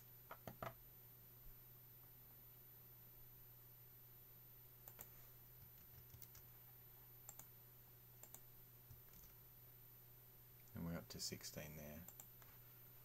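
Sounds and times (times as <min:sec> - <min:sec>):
faint low hum: 0:00.0 - 0:13.0
computer mouse clicks: 0:04.9 - 0:06.5, 0:07.3 - 0:07.5, 0:08.2 - 0:09.3, 0:12.0 - 0:12.5.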